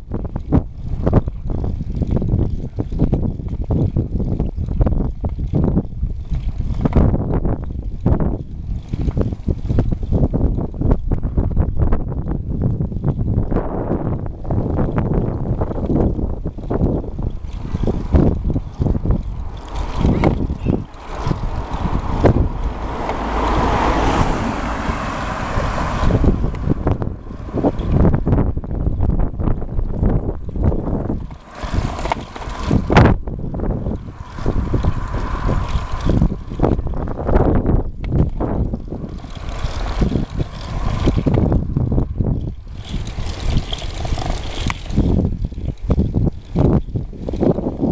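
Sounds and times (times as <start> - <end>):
bike basket rattling: 0.0 - 47.9
wind rumble on microphone: 0.0 - 47.9
van passing road noise: 13.7 - 44.7.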